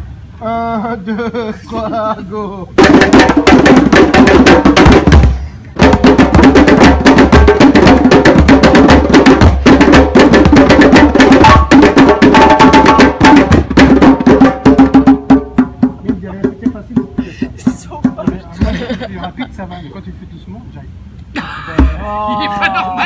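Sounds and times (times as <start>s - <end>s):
djembes playing fast rhythm: 2.8s - 19.6s, 21.8s - 22.2s.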